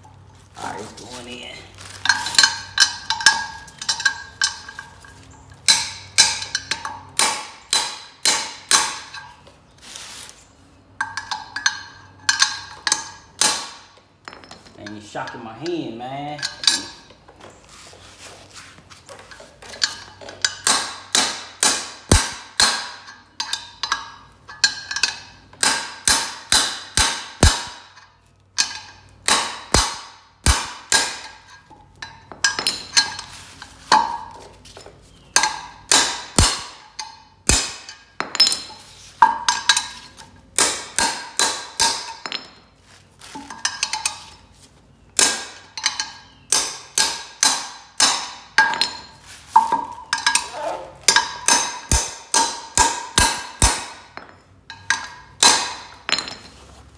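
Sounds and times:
hammer striking metal wrench: 19.8 - 33.3, 35.4 - 42.6, 45.2 - 56.4.

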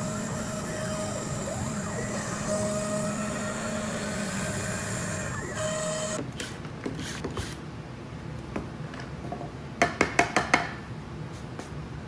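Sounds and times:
router spindle spinning down: 0.0 - 6.2.

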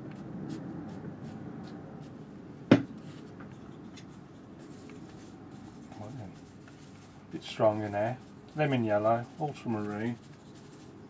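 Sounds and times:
brush scratching paper: 0.2 - 2.2, 3.0 - 11.0
sharp knock: 2.7 - 2.9.

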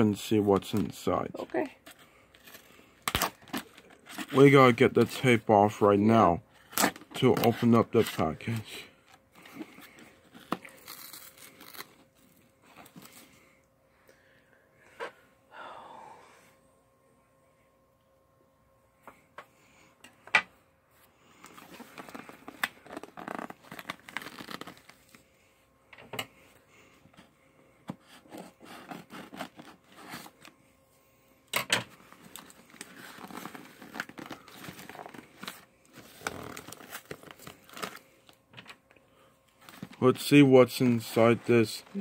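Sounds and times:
tape and cardboard tearing: 10.3 - 12.0, 21.8 - 25.0, 28.2 - 30.4, 32.3 - 38.0.

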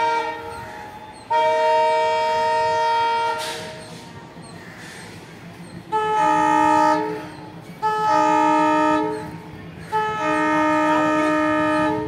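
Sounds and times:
train air horn blasts: 0.0 - 3.8, 5.9 - 9.3, 9.9 - 12.0.

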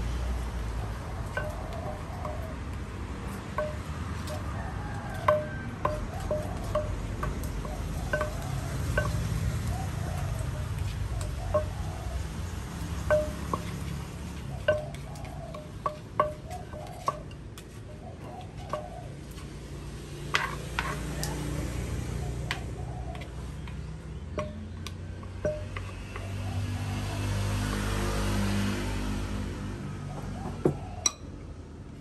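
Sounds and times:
wooden pestle knocking in mortar: 1.3 - 2.6, 3.5 - 4.5, 5.1 - 9.4, 10.2 - 11.8, 13.0 - 17.6, 20.3 - 21.0, 22.5 - 26.4
spoon scraping: 20.4 - 21.2.

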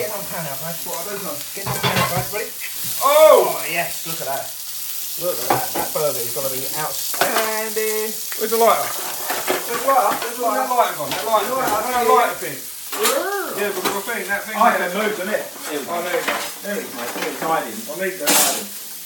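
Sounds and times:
men talking: 0.0 - 18.8
burger sizzling in a pan: 0.0 - 19.0
spatula scraping: 8.7 - 10.4.

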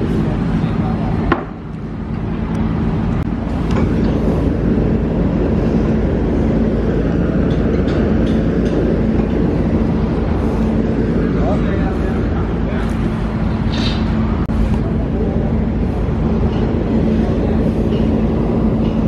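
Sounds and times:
engine running with low rumble: 0.0 - 19.0
sharp click: 13.7 - 14.1.

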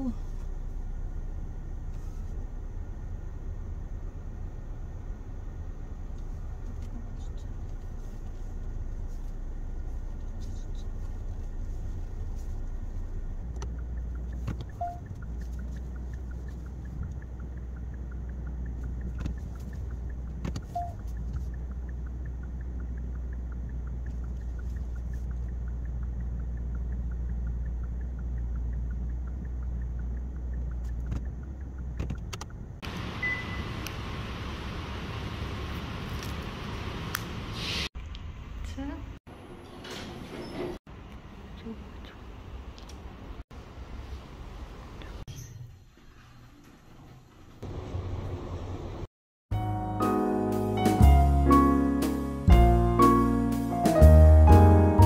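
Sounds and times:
car cabin hum: 0.0 - 36.0
faint ticking: 12.2 - 32.8
short high beep: 20.7 - 21.0, 33.2 - 33.7.

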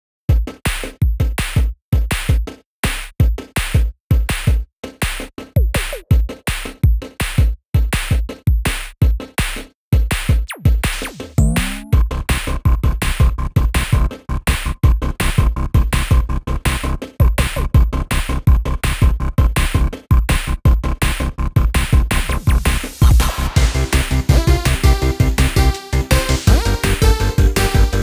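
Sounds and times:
electronic music with drum-machine beat: 3.2 - 9.4, 10.0 - 12.1, 12.8 - 28.0.

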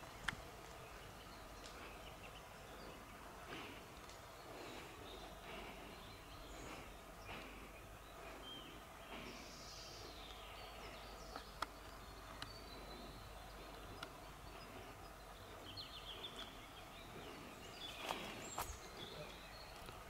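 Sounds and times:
bird chirps: 0.8 - 20.0
faint clicks: 3.9 - 4.2, 11.2 - 12.6, 13.6 - 14.6.

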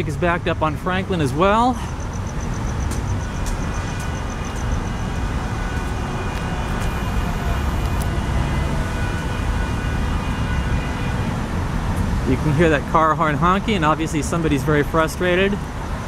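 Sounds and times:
city traffic rumble: 0.0 - 16.0.

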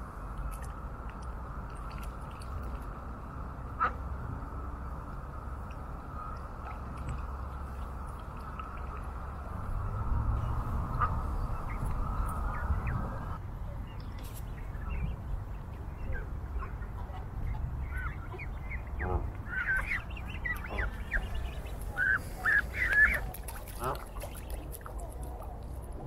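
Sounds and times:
low rumble: 0.0 - 24.0
geese honking: 17.9 - 24.8.

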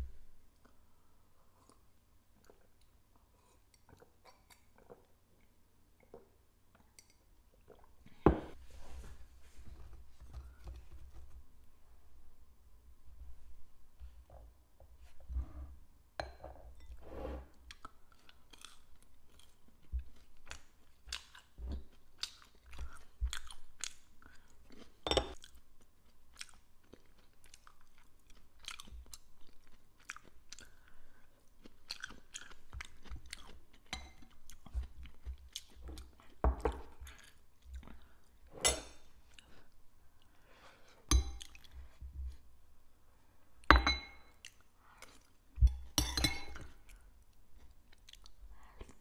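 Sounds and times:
person chewing food: 17.6 - 38.4, 39.2 - 42.4, 46.6 - 49.0.

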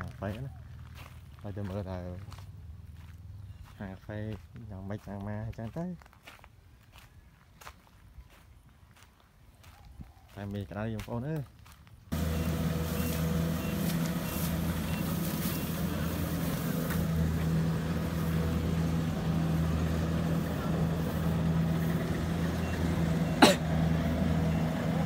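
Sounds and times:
combine harvester engine humming: 12.1 - 25.0.

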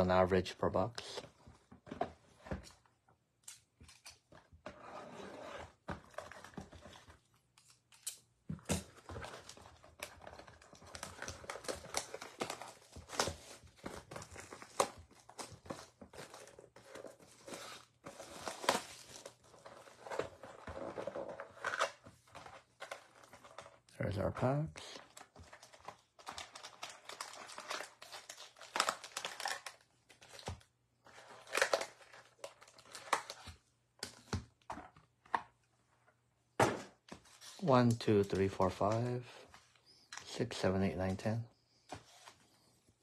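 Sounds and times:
plastic wrap crinkling and tearing: 8.9 - 22.0, 24.5 - 33.6.

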